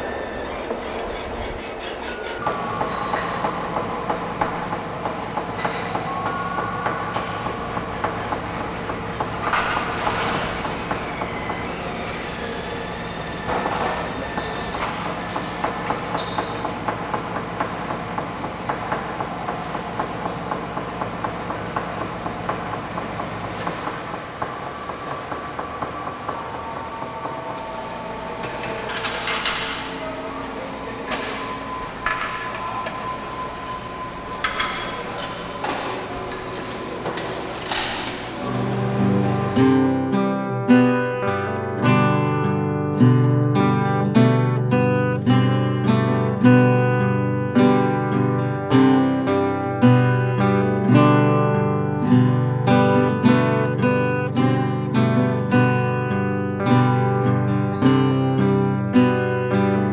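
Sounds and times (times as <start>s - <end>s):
wheel squealing: 0.0s - 17.0s
train wheels clattering on rails: 0.0s - 38.6s.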